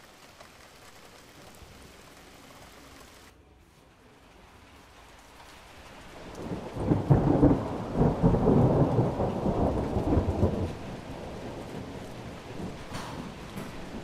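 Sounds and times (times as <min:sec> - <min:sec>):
rain hissing: 0:00.0 - 0:14.0
thunder rumbling: 0:05.7 - 0:14.0.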